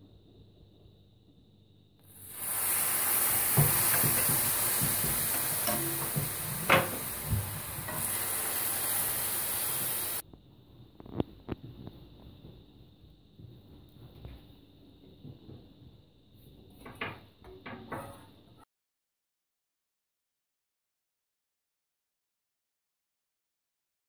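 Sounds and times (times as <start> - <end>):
syrup sizzling with crackles: 2.1 - 10.2.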